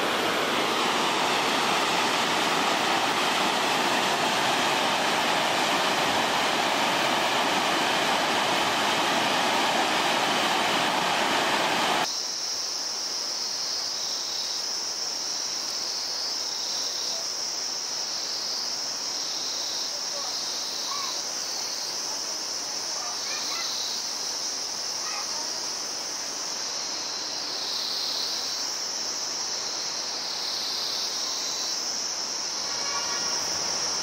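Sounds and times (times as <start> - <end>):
river rapids rushing over boulders: 0.0 - 12.1
high insect chorus: 0.0 - 34.0.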